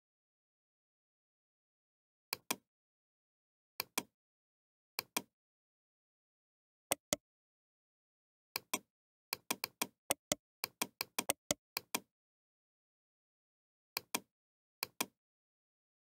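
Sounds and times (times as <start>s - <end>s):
computer mouse clicks: 2.3s - 2.6s, 5.0s - 5.3s, 6.9s - 7.2s, 8.6s - 12.1s, 14.0s - 15.2s.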